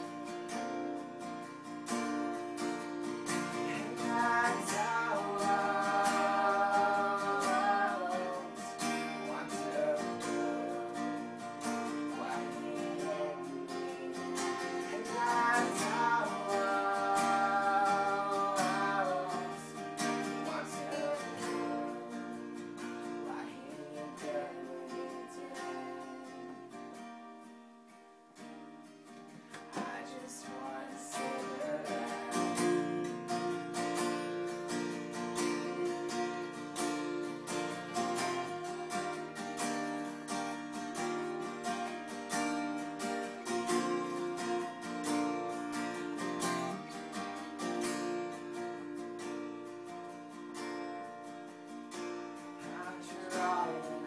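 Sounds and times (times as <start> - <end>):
acoustic guitars strummed: 0.0 - 54.0
person singing: 3.2 - 27.0, 29.6 - 47.1, 52.4 - 54.0.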